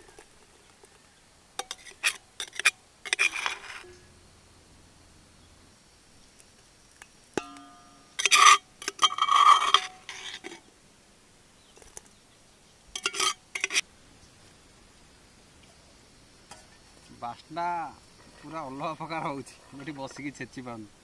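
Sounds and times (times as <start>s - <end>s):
metal clink in iron mortar: 1.6s - 4.1s, 7.4s - 10.6s, 13.0s - 13.8s
scraping in iron mortar: 1.6s - 4.1s, 7.4s - 10.7s, 13.0s - 13.8s, 18.2s - 20.5s.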